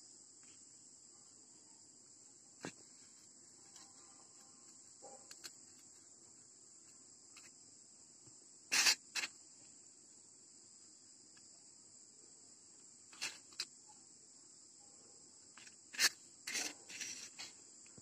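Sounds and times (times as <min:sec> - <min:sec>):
crickets chirring: 0:00.0 - 0:18.0
sharp scrapes on foam: 0:08.7 - 0:09.3, 0:13.1 - 0:13.7, 0:15.6 - 0:17.6.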